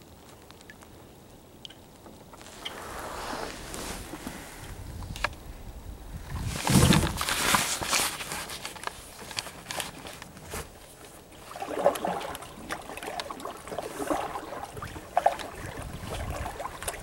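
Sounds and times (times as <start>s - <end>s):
small clicks and drips: 0.0s - 2.7s, 8.6s - 17.0s
paddle splashing in water: 2.4s - 4.8s, 6.5s - 17.0s.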